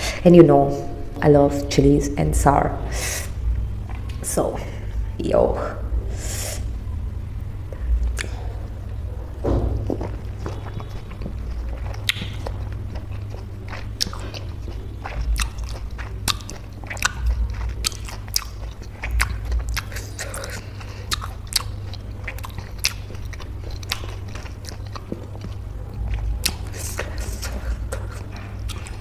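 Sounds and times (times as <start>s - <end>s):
chewing orange: 7.8s - 9.2s, 9.8s - 29.0s
wet mouth clicks and smacks: 8.1s - 8.4s, 11.8s - 12.6s, 26.4s - 29.0s.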